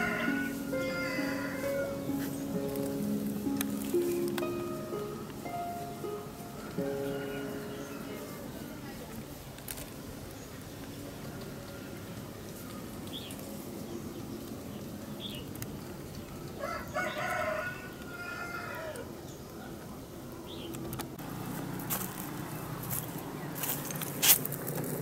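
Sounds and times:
rooster crowing: 0.0s - 2.1s, 6.6s - 8.5s, 16.6s - 19.1s.

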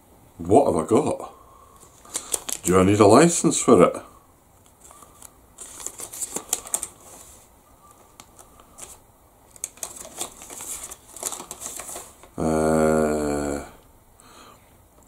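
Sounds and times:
paper leaflet crinkling: 1.8s - 3.0s, 4.6s - 12.4s.

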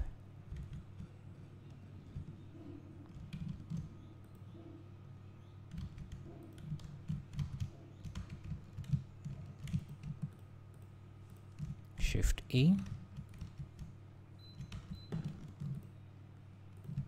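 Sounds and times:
steady low hum: 0.0s - 17.0s
computer keyboard typing: 0.5s - 1.2s, 3.1s - 4.4s, 5.7s - 11.9s, 12.8s - 13.9s, 14.6s - 15.9s, 16.7s - 17.0s.

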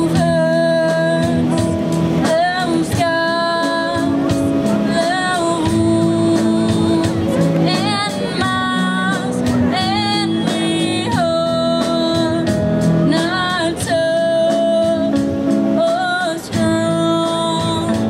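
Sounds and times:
rock band playing: 0.0s - 18.0s
woman singing long held notes: 0.0s - 18.0s.

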